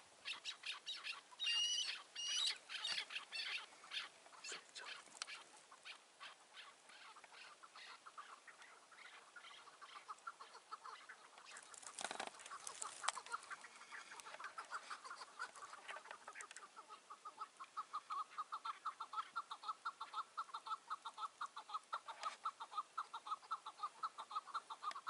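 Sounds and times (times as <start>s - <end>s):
brief rustle: 11.4s - 15.0s.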